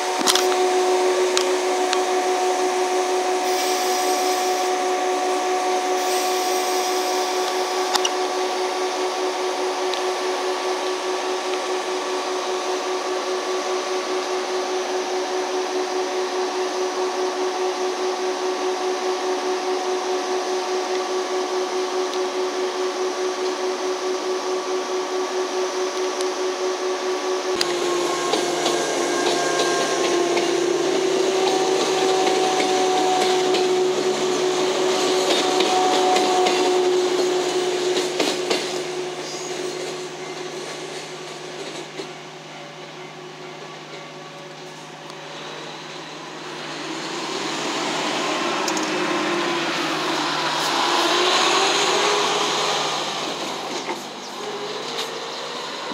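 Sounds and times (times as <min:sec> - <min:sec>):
electric train motor whine: 0:00.0 - 0:55.9
train wheels on rails: 0:00.0 - 0:55.9
pulsing ringing tone: 0:25.0 - 0:38.1.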